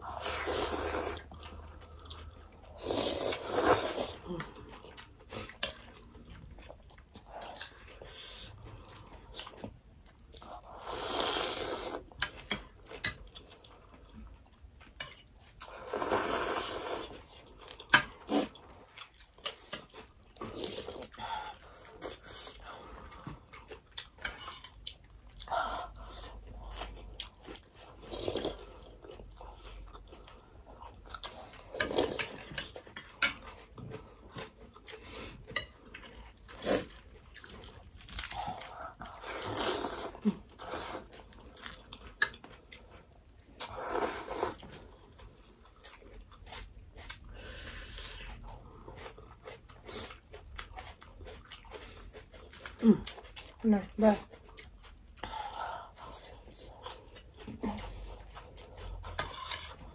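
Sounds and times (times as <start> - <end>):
chewing and crunching: 0.0 - 59.9
slurping soup: 0.1 - 4.6, 10.6 - 12.3, 15.6 - 17.3, 39.1 - 41.5, 43.5 - 45.0.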